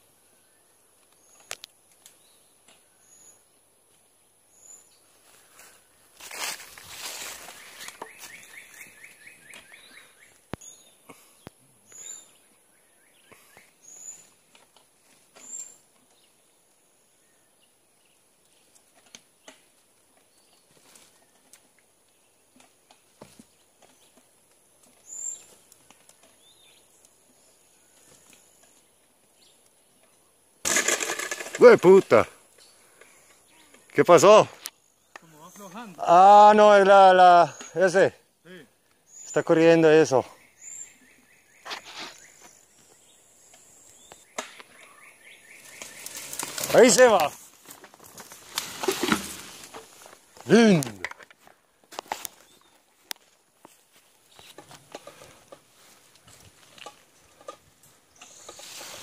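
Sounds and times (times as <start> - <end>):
bird calling: 7.1 - 11.2, 39.1 - 47.5.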